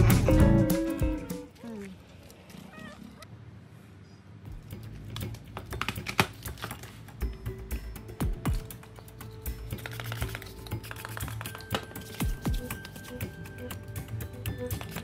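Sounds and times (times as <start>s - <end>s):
quiet background music: 0.0s - 1.6s, 4.4s - 15.0s.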